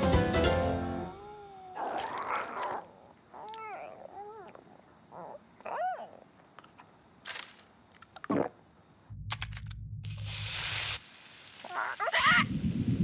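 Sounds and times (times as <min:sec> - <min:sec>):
low rumble: 0:09.1 - 0:10.4
cartoon character vocal: 0:11.7 - 0:12.5.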